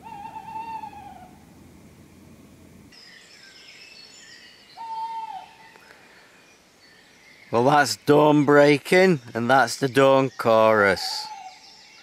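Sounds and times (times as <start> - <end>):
owl hooting: 0.0 - 1.5, 4.8 - 5.8, 10.8 - 11.7
songbirds twittering: 2.1 - 12.0.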